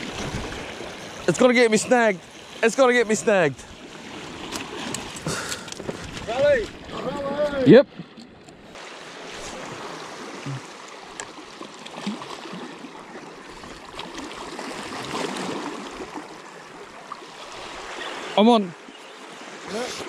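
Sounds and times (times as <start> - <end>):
surf washing against rocks: 0.0 - 7.8, 8.7 - 12.8.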